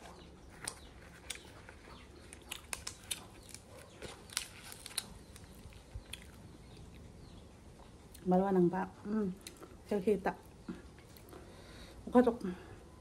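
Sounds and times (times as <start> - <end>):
close-up chewing: 0.0 - 8.3
leaf-wrapped food packet crackling: 0.5 - 7.0.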